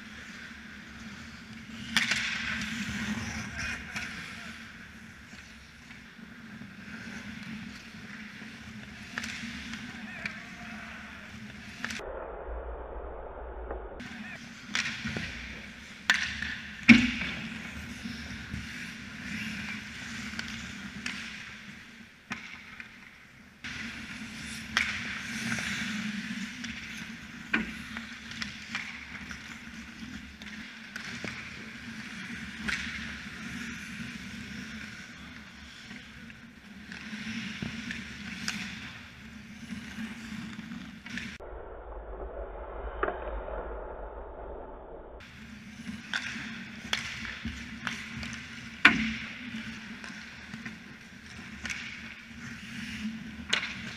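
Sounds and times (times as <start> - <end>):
hockey sticks and puck clacking: 0.0 - 12.0, 14.0 - 41.4, 45.2 - 53.9
skate blades scraping ice: 0.0 - 12.0, 14.1 - 41.4, 45.2 - 53.9
steady low hum: 41.4 - 45.5.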